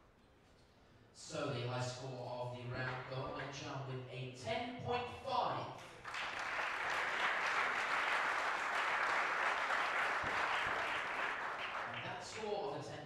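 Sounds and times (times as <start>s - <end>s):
audience applauding: 6.0s - 12.4s.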